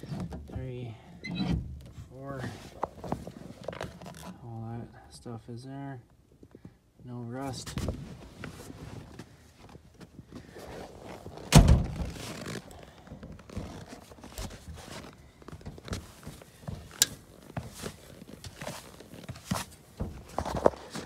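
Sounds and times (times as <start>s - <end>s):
heavy thunk: 11.5s - 12.0s.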